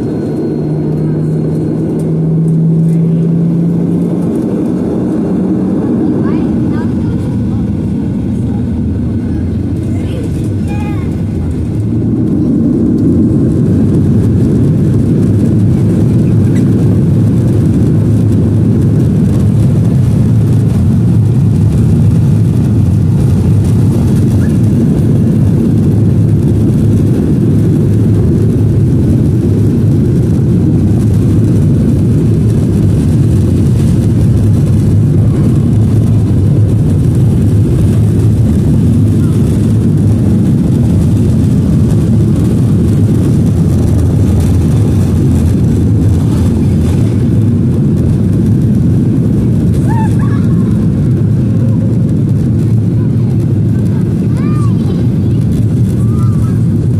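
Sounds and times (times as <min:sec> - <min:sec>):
jet engines idling in cabin: 0:00.0 - 0:56.9.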